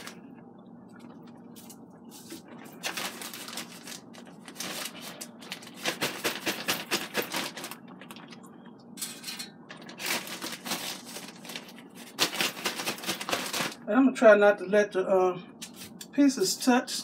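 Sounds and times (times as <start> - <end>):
plastic bag crinkling: 1.6 - 8.4, 9.7 - 13.8.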